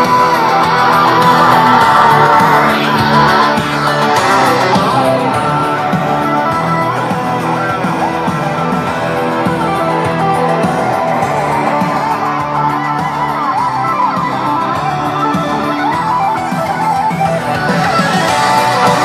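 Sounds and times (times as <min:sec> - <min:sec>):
guitar music through speakers: 0:00.0 - 0:19.0.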